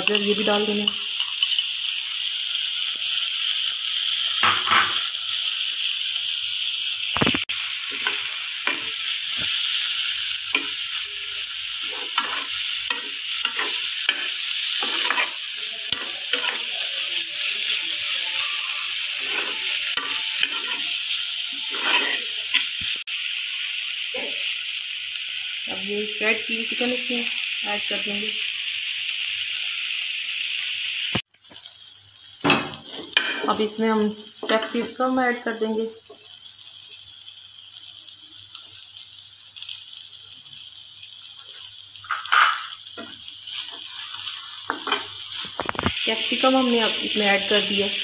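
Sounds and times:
vegetables sizzling in frying pan: 0.0 - 48.0
metal spoon scraping pan: 11.8 - 20.9, 21.7 - 22.7.

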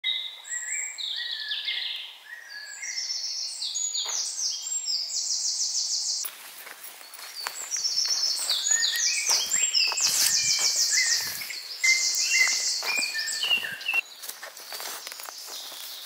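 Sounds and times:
songbirds singing: 0.0 - 16.0
footsteps on earth path: 4.0 - 4.4, 6.2 - 16.0.

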